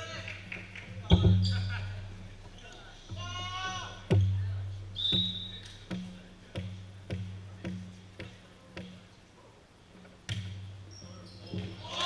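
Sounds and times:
low ring in hall: 0:00.0 - 0:12.0
ball bouncing on gym floor: 0:04.1 - 0:09.0, 0:10.3 - 0:10.8.

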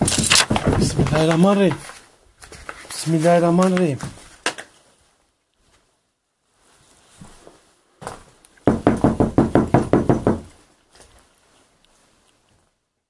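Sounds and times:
rapid knocking: 0:08.7 - 0:10.5.

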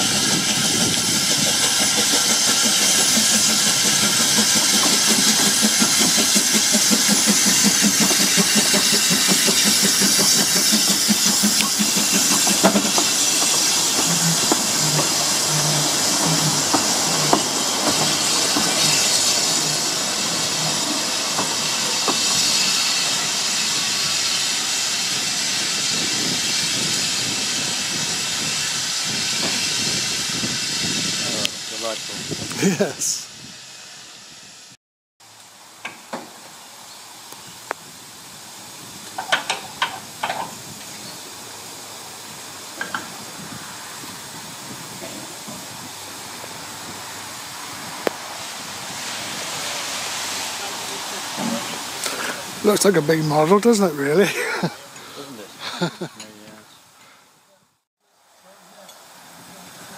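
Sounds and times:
train wheels thudding: 0:00.0 - 0:22.7
sharp clicks of train: 0:00.0 - 0:24.5, 0:28.6 - 0:30.8, 0:39.0 - 0:41.0, 0:42.7 - 0:43.2
steam locomotive chuffing: 0:00.0 - 0:34.7, 0:38.3 - 0:56.1
steam hissing: 0:00.0 - 0:34.8, 0:35.5 - 0:57.4, 0:58.4 - 0:59.9.

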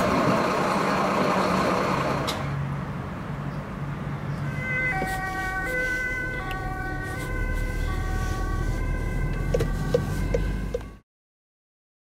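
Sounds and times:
car engine and road rumble: 0:00.0 - 0:11.0
ambulance two-tone siren: 0:04.4 - 0:11.0.

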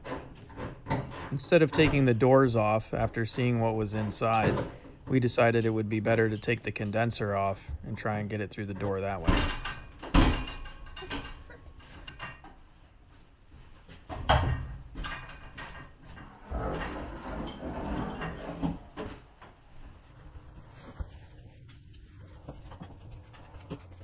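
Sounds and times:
objects knocking and clattering: 0:00.0 - 0:02.2, 0:09.2 - 0:12.7, 0:13.9 - 0:19.6
scraping and rustling: 0:15.1 - 0:24.0.

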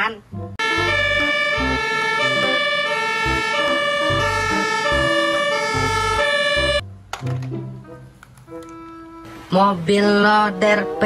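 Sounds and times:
low notes: 0:00.0 - 0:08.1
siren stepping between pitches: 0:00.6 - 0:06.9.

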